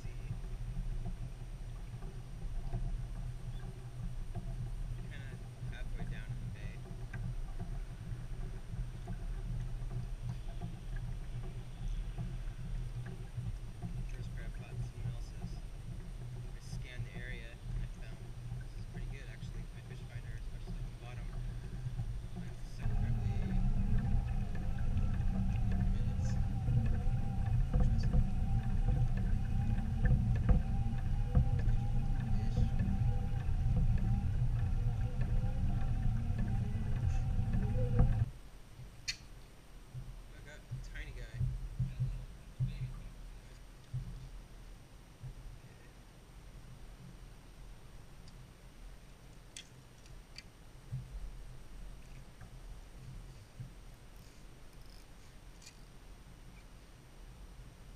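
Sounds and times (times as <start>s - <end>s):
small knocks: 0.0s - 39.3s
faint steady whine: 0.0s - 57.9s
muffled water and wind rumble: 0.0s - 57.9s.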